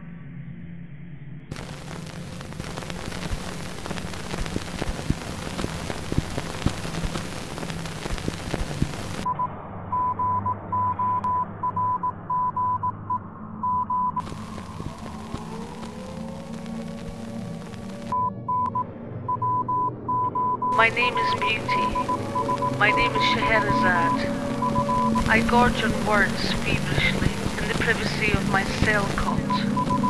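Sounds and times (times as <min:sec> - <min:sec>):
low hum: 0:00.0 - 0:30.0
crackling radio static: 0:01.5 - 0:09.4, 0:13.8 - 0:18.8, 0:19.5 - 0:30.0
morse code beeps: 0:09.3 - 0:14.2, 0:18.2 - 0:26.0, 0:27.5 - 0:30.0.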